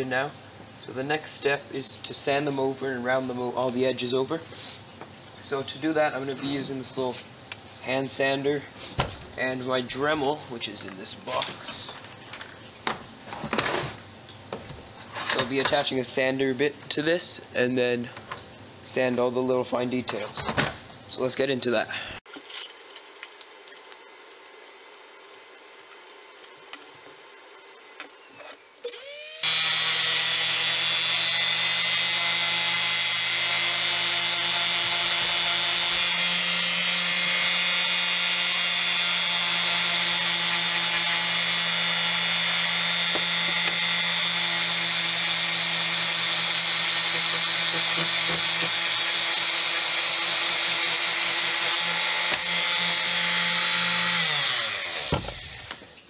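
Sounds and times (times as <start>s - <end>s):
electric palm sander running: 28.9s - 55.8s.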